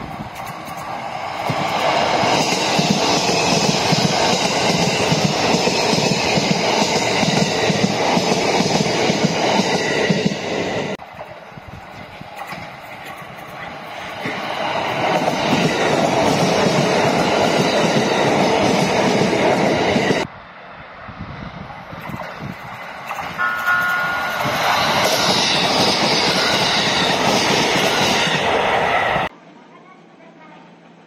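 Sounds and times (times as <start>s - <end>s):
train wheels rumbling over rails: 0.0s - 20.3s, 21.4s - 29.3s
short steady high tone: 23.4s - 25.4s.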